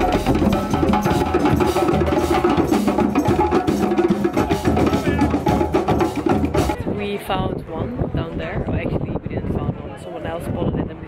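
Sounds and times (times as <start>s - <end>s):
drum kit: 0.0s - 6.8s
hand drums beating fast rhythm: 0.0s - 7.0s.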